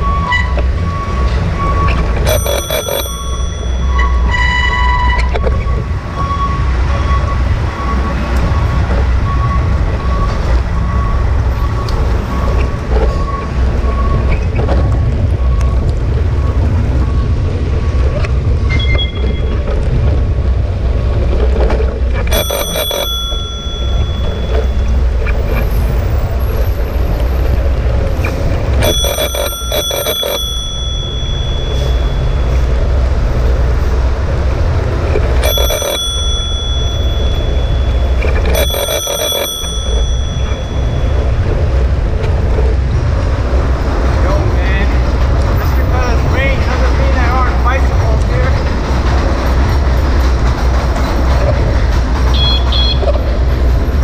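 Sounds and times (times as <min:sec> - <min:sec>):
low rumble of traffic: 0:00.0 - 0:54.0
bicycle bell dings: 0:02.2 - 0:05.0, 0:22.3 - 0:25.9, 0:28.7 - 0:33.0, 0:35.4 - 0:41.9.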